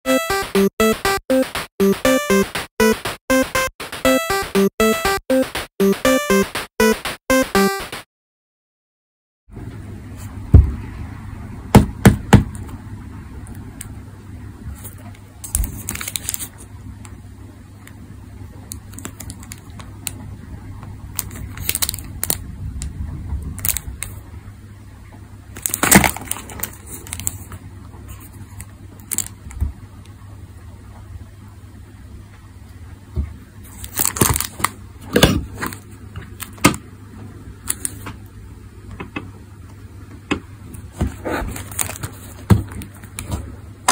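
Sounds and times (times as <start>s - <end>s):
low steady hum: 9.5s - 43.9s.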